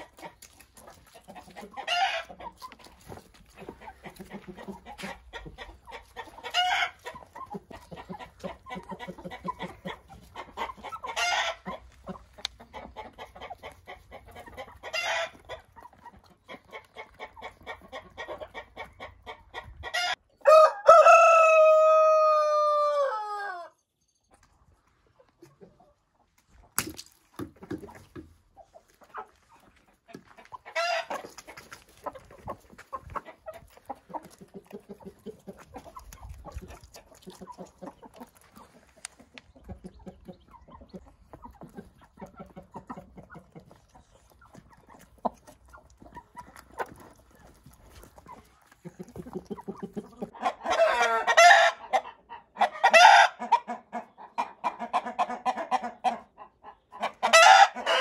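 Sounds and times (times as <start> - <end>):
hens clucking: 0.0 - 23.7, 24.3 - 26.8, 27.4 - 58.0
rooster crowing: 20.4 - 23.7.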